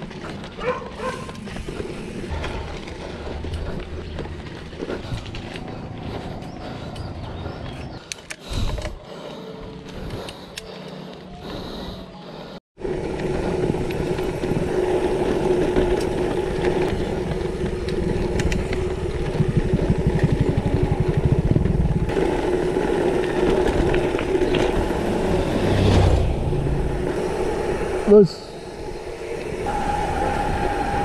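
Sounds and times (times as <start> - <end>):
bike tyres crunching on gravel: 0.0 - 7.9.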